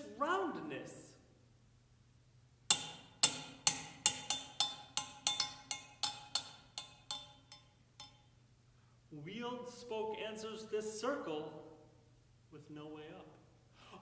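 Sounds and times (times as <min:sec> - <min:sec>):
sticks striking a frying pan: 0:02.7 - 0:08.3.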